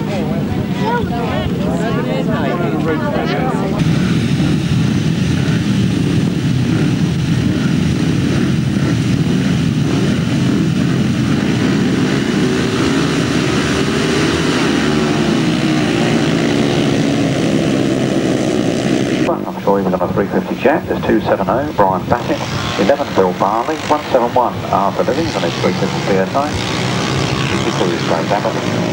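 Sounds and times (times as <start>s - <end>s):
motorcycles revving and accelerating: 0.0s - 28.9s.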